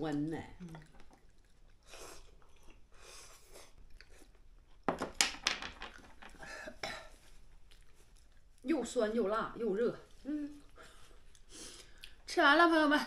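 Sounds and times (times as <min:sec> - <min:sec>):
smacking and chewing: 0:00.1 - 0:04.9, 0:07.2 - 0:08.7, 0:10.1 - 0:12.3
people slurping soup: 0:00.6 - 0:04.3.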